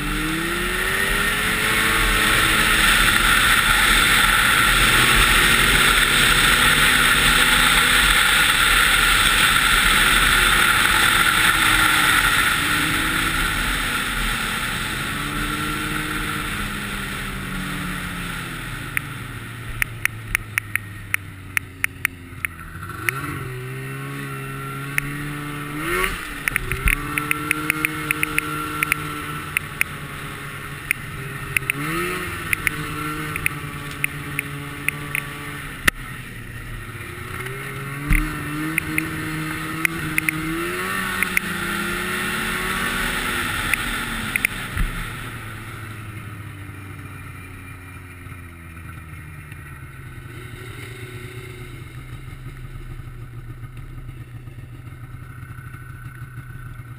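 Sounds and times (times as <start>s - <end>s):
snowmobile engine revving: 0.0s - 56.9s
sharp clicks: 19.7s - 23.2s, 26.0s - 30.0s, 30.8s - 36.0s, 37.4s - 40.5s, 41.2s - 41.5s, 43.6s - 45.0s.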